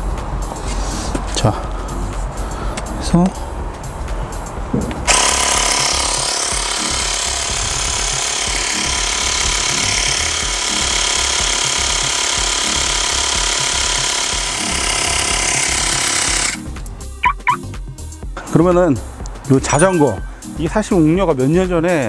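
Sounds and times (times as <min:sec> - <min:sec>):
electric air pump rattling: 0:05.0 - 0:16.6.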